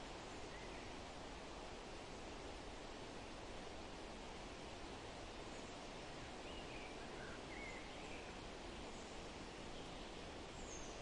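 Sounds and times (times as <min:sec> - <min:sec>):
wind through trees: 0:00.0 - 0:11.0
bird chirps: 0:06.4 - 0:08.3.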